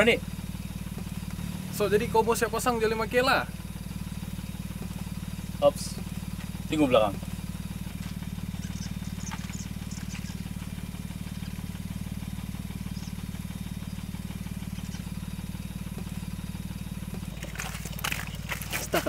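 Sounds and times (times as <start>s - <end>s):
engine idling: 0.0s - 19.0s.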